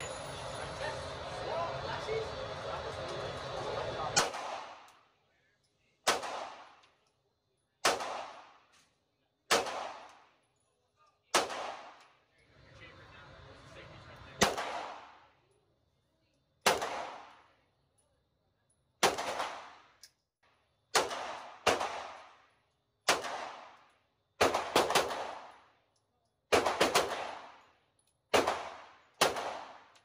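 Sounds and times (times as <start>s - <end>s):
pistol shots echoing: 4.2s - 4.9s, 6.0s - 6.9s, 7.8s - 8.7s, 9.5s - 10.3s, 11.3s - 12.0s, 14.4s - 15.2s, 16.6s - 17.4s, 19.0s - 19.9s, 20.9s - 22.4s, 23.1s - 25.7s, 26.5s - 27.7s, 28.3s - 30.0s.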